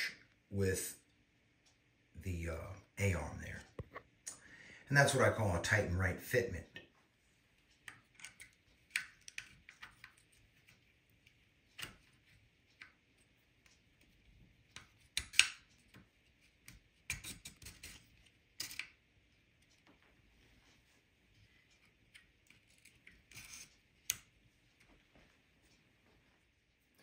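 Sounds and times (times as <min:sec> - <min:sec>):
small metal and plastic clicks: 0:07.7 - 0:13.0, 0:13.6 - 0:19.0.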